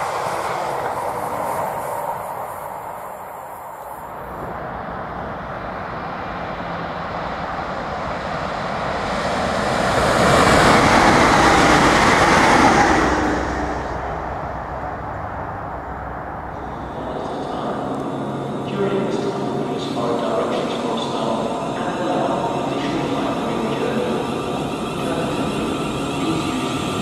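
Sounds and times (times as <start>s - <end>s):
electric train passing at speed: 0.0s - 27.0s.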